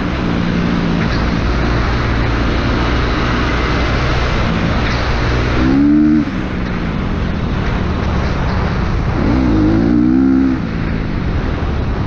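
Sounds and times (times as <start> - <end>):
wind and track noise: 0.0 - 12.0
dirt bike engine revving: 0.4 - 6.6, 9.1 - 10.9.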